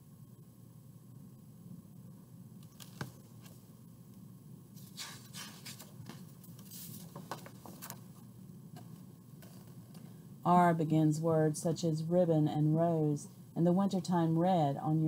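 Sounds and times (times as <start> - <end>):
book pages rustling: 2.6 - 3.7, 4.8 - 8.2.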